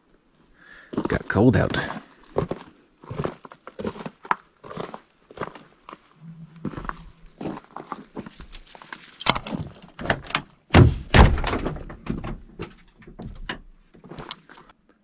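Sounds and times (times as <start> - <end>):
irregular knocks and clatter: 6.8 - 14.6
heavy thud: 10.7 - 12.4.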